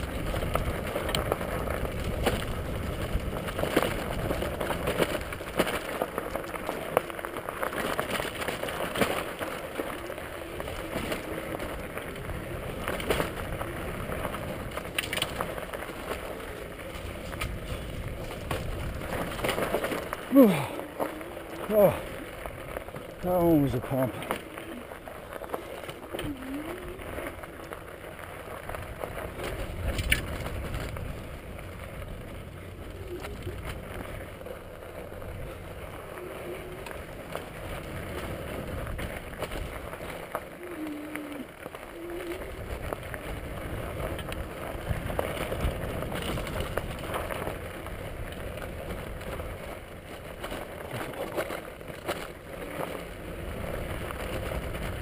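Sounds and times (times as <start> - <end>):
bicycle tyres crunching on gravel: 0.0 - 55.0
bike clicks and knocks: 0.0 - 55.0
wind rumble on microphone: 0.0 - 55.0.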